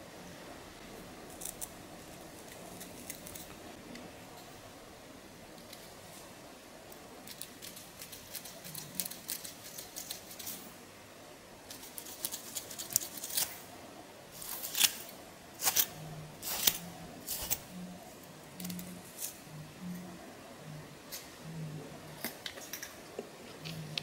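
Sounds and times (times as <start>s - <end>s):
comb scratching scalp: 11.7s - 13.5s.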